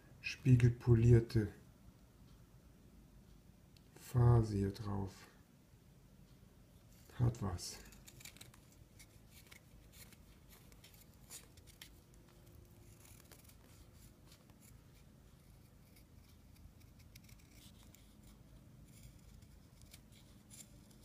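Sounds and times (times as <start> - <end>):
knife blade cutting wood: 15.8 - 18.1.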